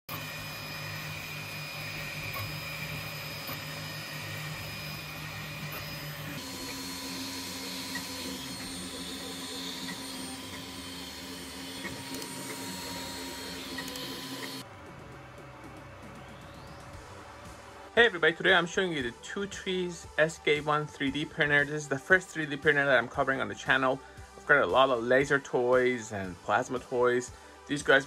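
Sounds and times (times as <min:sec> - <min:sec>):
printer fans and motors whirring: 0:00.1 - 0:27.2.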